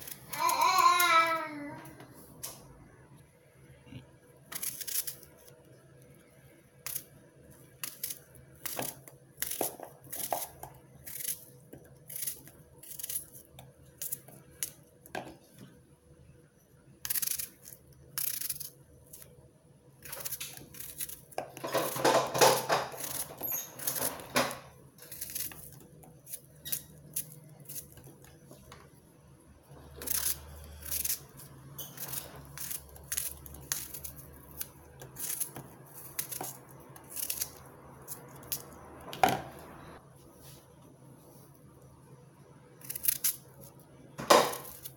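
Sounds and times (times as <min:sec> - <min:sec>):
knife cutting an apple: 0:04.4 - 0:05.6, 0:07.7 - 0:14.8, 0:20.0 - 0:28.5, 0:29.9 - 0:39.2, 0:42.8 - 0:44.9.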